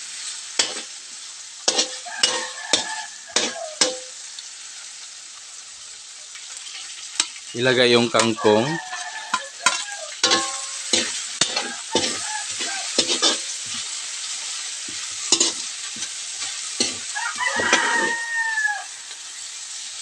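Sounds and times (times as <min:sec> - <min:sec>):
spatula scraping a wok: 0:00.0 - 0:04.4, 0:06.5 - 0:19.9
oil sizzling: 0:00.0 - 0:20.0
rooster crowing: 0:01.9 - 0:04.0, 0:08.1 - 0:13.4, 0:16.8 - 0:19.4.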